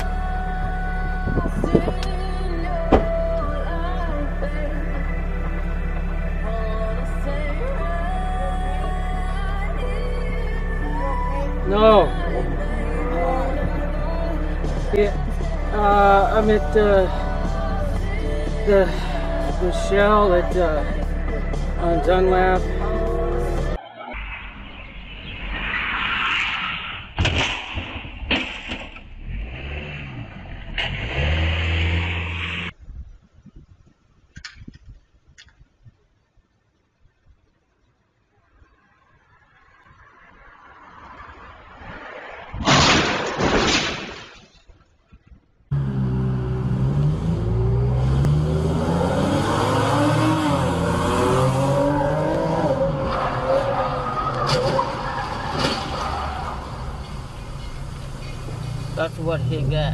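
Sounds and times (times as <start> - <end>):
car engine revving: 0.0 - 27.0, 29.1 - 32.8, 45.7 - 59.9
car crash bangs: 25.8 - 29.2, 42.6 - 44.6, 54.3 - 57.8
tyres squealing: 50.8 - 59.0.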